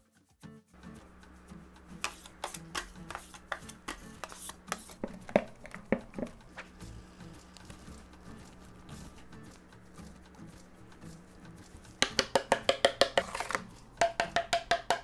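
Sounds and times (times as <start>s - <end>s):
metal scrapers on marble: 13.0s - 13.7s.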